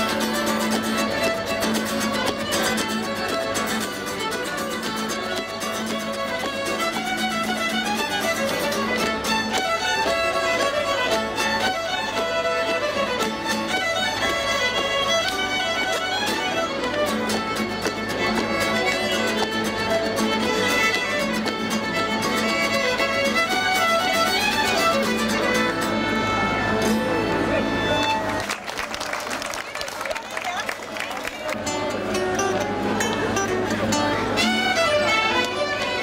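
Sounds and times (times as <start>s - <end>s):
acoustic guitar accompaniment: 0.0s - 28.4s, 31.4s - 36.0s
fiddles playing lively tune: 0.0s - 28.6s, 31.3s - 36.0s.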